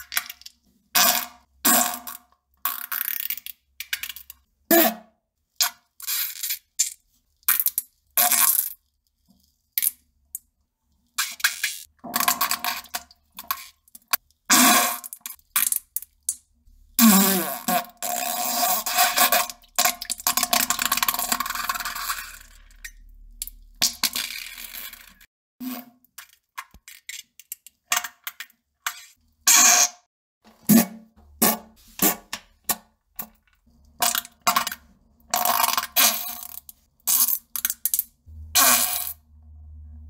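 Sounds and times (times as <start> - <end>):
farts: 17.0 - 19.5.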